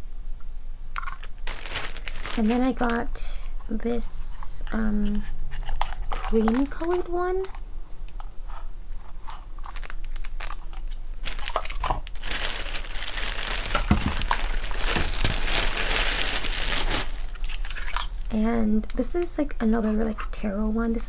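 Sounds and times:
packaging crinkling and rustling: 0:01.0 - 0:03.1, 0:05.0 - 0:19.0.

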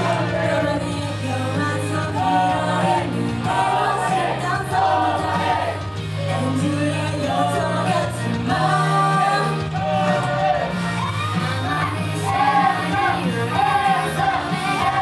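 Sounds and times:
pop backing music: 0:00.0 - 0:15.0
woman singing into microphone: 0:00.0 - 0:15.0.

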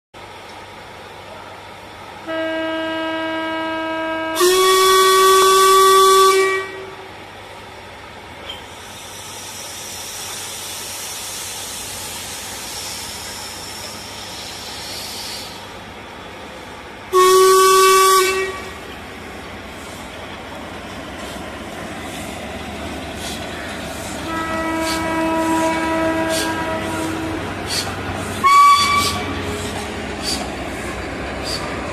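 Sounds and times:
steam locomotive whistle: 0:02.2 - 0:07.1, 0:17.1 - 0:18.8, 0:24.2 - 0:30.5
steam hissing: 0:08.5 - 0:31.9.

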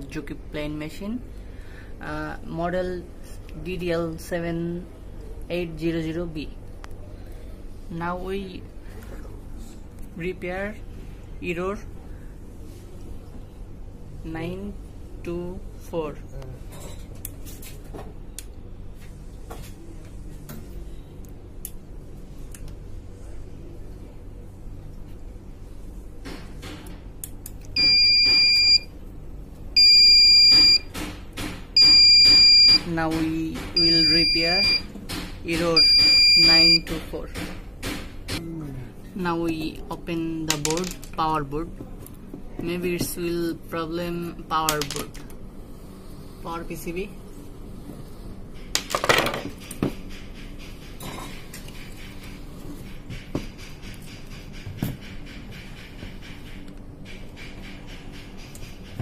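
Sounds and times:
high error beeps: 0:27.8 - 0:28.9, 0:29.8 - 0:30.8, 0:31.8 - 0:32.8, 0:33.8 - 0:34.9, 0:35.8 - 0:36.9.

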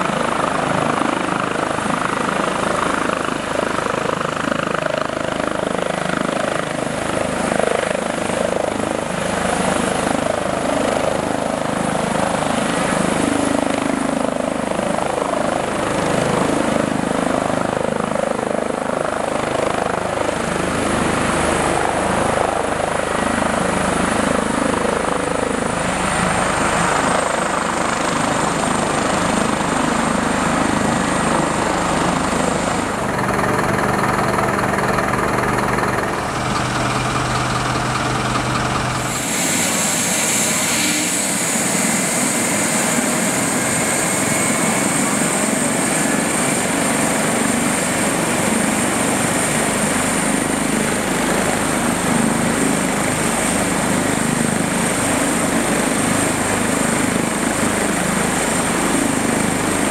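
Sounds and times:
helicopter rotor noise: 0:00.0 - 0:59.9
high turbine whine: 0:32.5 - 0:46.6.

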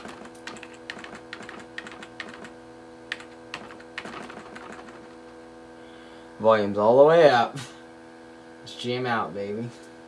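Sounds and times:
keyboard keys clicking: 0:00.0 - 0:02.5, 0:03.1 - 0:05.1
steady hum: 0:00.0 - 0:10.0.

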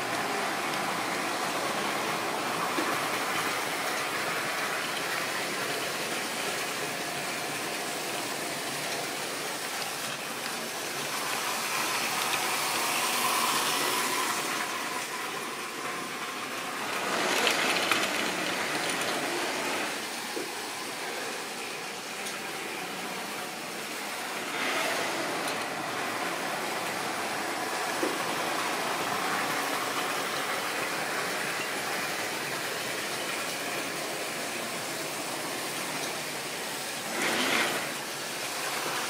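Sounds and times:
model train wheels rattling: 0:14.6 - 0:20.1.

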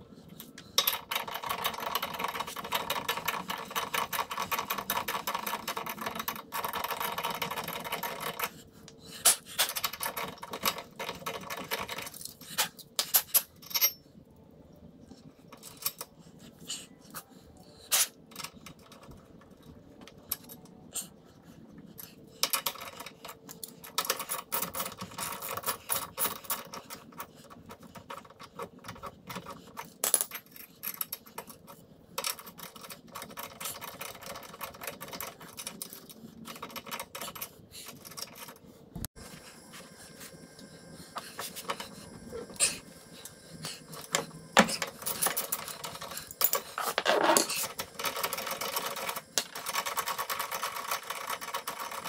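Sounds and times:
hand tools clicking and clinking: 0:43.9 - 0:51.6.

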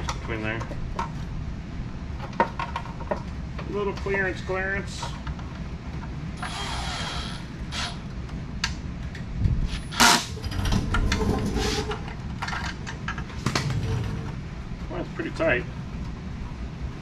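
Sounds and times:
low steady rumble: 0:00.0 - 0:17.0
tools and parts clinking: 0:09.8 - 0:13.8.

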